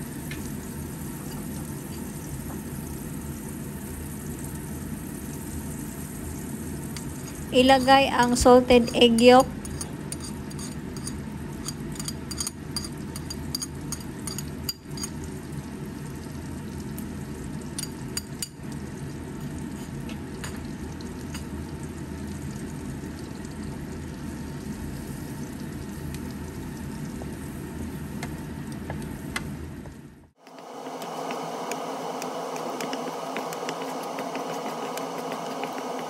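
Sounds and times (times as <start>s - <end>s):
butter sizzling in a wok: 0.0s - 36.0s
wooden spatula scraping: 32.5s - 36.0s.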